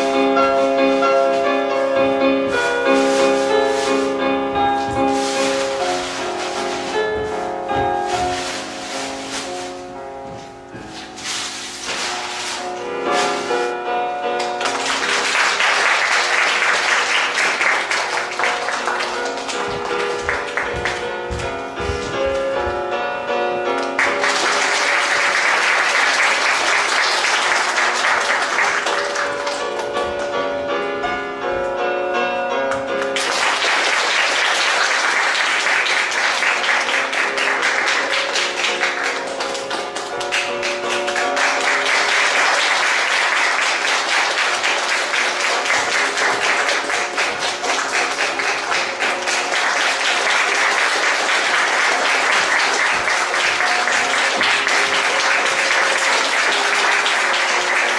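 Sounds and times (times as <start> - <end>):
music playing: 0.0 - 57.9
audience applauding: 14.4 - 21.1, 23.9 - 30.2, 33.0 - 57.9.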